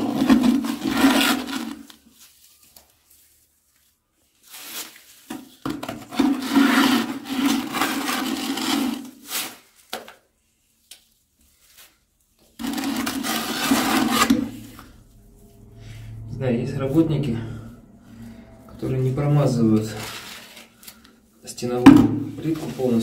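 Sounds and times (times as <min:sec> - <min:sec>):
trowel scraping adhesive: 0:12.6 - 0:14.7.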